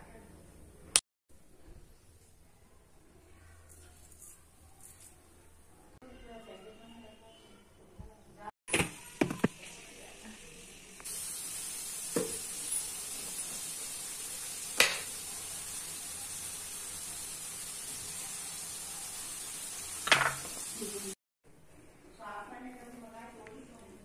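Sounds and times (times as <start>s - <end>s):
steady hiss: 9.7s - 21.2s.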